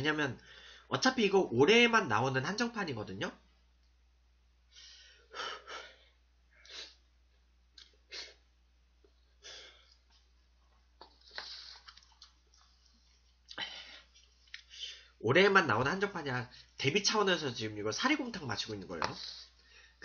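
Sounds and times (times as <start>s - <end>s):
person breathing: 0.4s - 0.9s, 4.7s - 7.0s, 9.4s - 10.0s, 13.5s - 15.2s, 19.1s - 20.0s.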